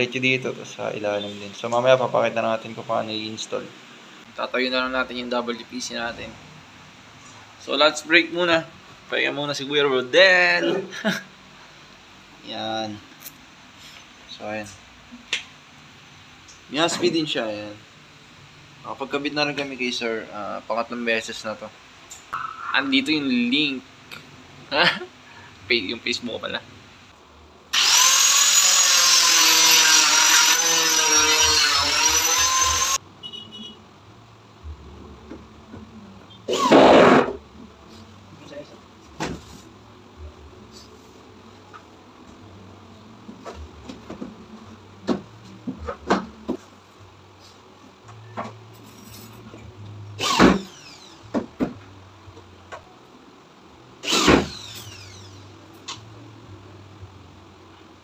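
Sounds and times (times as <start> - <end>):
power tool whining while cutting: 27.7 - 33.0, 50.2 - 51.2, 54.0 - 55.4.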